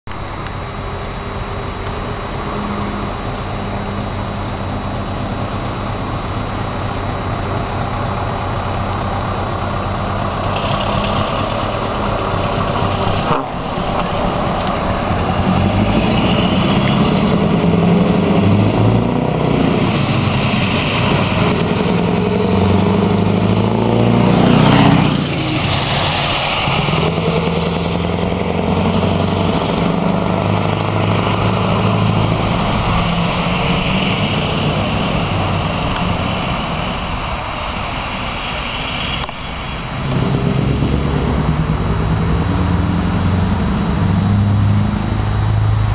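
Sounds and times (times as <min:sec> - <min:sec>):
truck diesel engine passing: 0:00.2 - 0:45.9.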